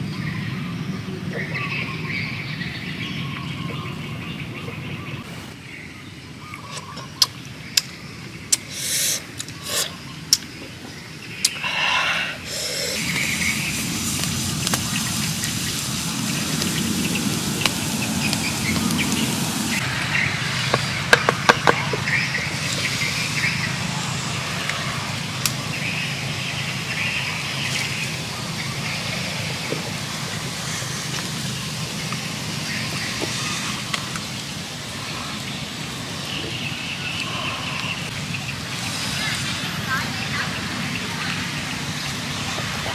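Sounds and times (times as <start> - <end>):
outdoor background noise: 0.0 - 42.9
wood fire burning: 12.4 - 42.9.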